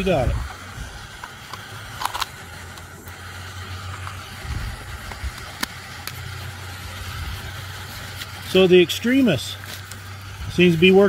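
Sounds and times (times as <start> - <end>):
steady low rumble: 0.0 - 11.0
plastic and metal clicks: 1.2 - 2.9.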